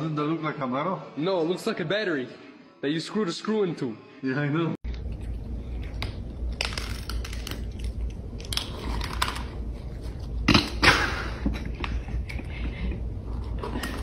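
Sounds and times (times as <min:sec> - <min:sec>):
low steady hum: 0:04.8 - 0:14.0.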